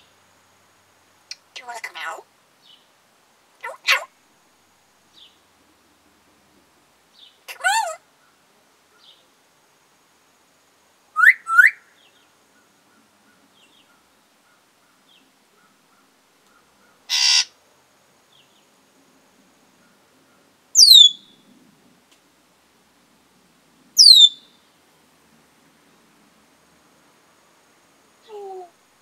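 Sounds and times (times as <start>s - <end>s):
parrot raspy burst: 3.6s - 4.1s, 17.1s - 17.5s
parrot whistling: 11.2s - 11.8s, 20.8s - 21.2s, 24.0s - 24.4s.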